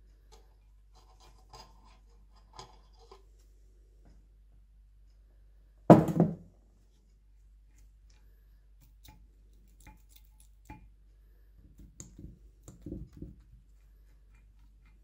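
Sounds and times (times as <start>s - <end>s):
faint clicks and light knocks: 11.7s - 15.0s.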